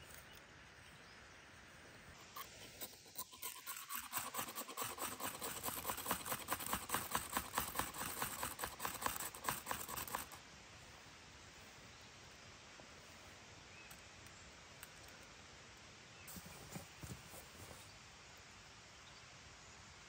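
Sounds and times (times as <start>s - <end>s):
rapid scraping strokes: 2.2s - 10.4s.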